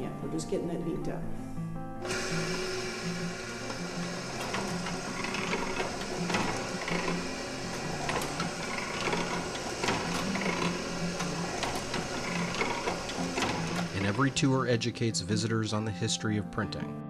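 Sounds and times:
printing press mechanical clatter: 0:02.0 - 0:14.5.

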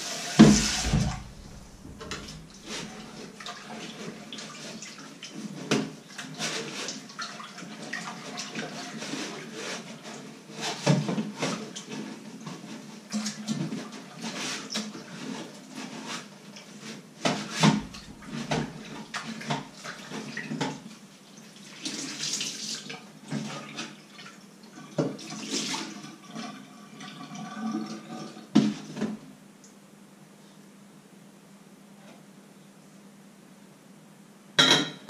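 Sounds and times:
sponge scrubbing: 0:00.0 - 0:05.0
water splashing in sink: 0:00.0 - 0:09.3, 0:17.4 - 0:20.8, 0:21.7 - 0:29.1
crockery clinking against sink: 0:34.6 - 0:35.0.

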